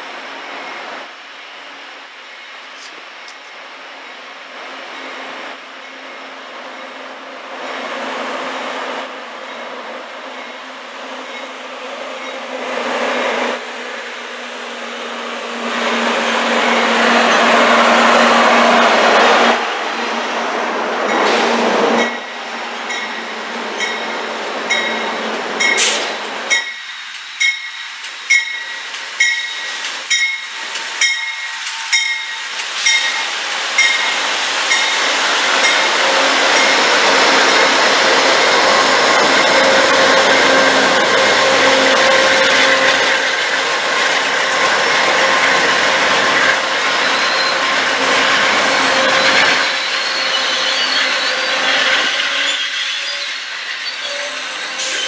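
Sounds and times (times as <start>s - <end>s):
diesel locomotive engines: 0.0s - 55.0s
locomotive bell ringing: 11.2s - 12.5s, 22.0s - 25.9s, 26.5s - 33.2s.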